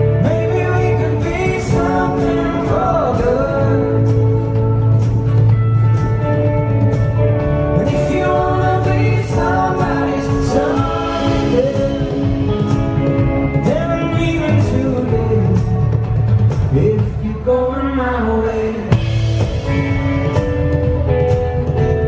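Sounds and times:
man singing: 0.0 - 4.8, 7.7 - 19.1
strummed acoustic guitars: 0.0 - 17.5.

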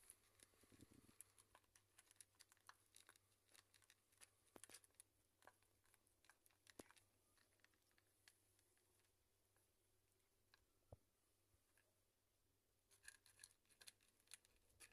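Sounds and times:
cats chewing food: 0.0 - 8.9.

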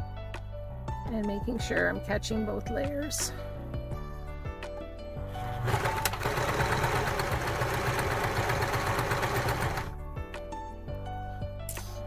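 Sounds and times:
sewing machine clattering: 5.4 - 9.9.

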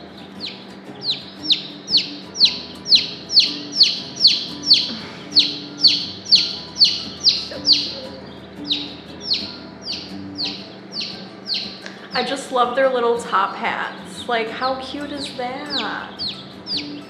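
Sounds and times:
chick peeping loudly: 0.4 - 12.1, 15.2 - 17.0.

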